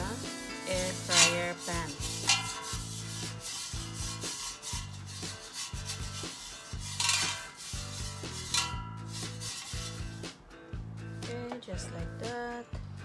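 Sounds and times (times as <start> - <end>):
brush rubbing on plastic: 0.0 - 10.4.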